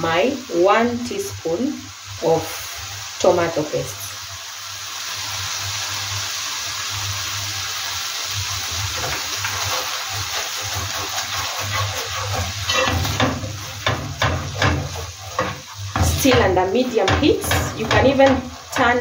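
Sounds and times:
food sizzling in a frying pan: 0:00.0 - 0:19.0
spatula scraping and knocking pan: 0:08.7 - 0:19.0.

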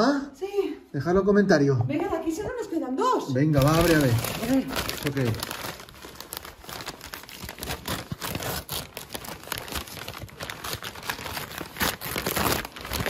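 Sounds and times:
paper bag crinkling and rustling: 0:03.6 - 0:13.0.

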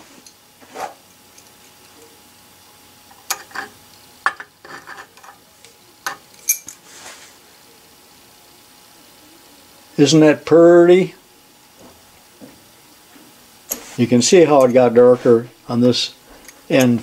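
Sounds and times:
soft hiss: 0:05.4 - 0:17.0.

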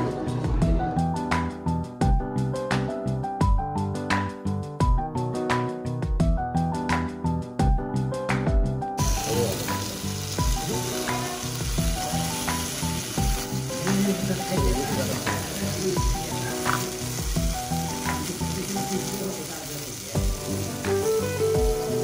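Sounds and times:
background music with steady beat: 0:00.0 - 0:18.7, 0:20.1 - 0:22.0
food sizzling and frying: 0:09.0 - 0:22.0.

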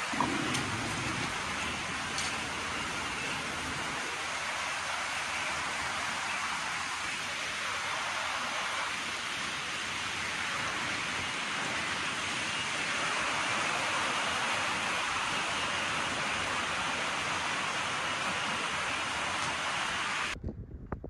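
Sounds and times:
steady hiss: 0:00.0 - 0:20.4.

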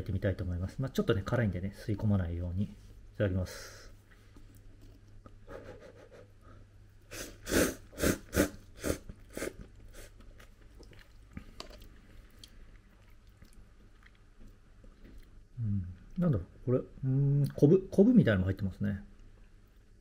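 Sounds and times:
person slurping noodles: 0:07.1 - 0:10.2
person chewing: 0:08.0 - 0:16.2.

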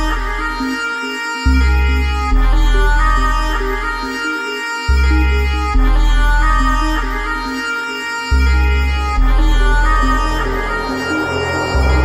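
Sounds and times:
music with sustained tones: 0:00.0 - 0:12.0
heavy bass line: 0:08.5 - 0:12.0.

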